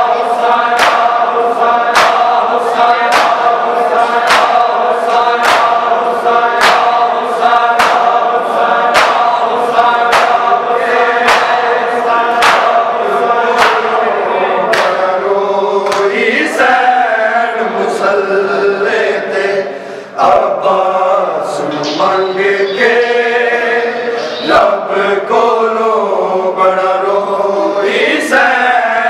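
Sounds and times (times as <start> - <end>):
chest-beating slaps: 0.0 - 14.0, 14.7 - 15.1, 15.8 - 16.2
men chanting in unison: 0.0 - 29.0.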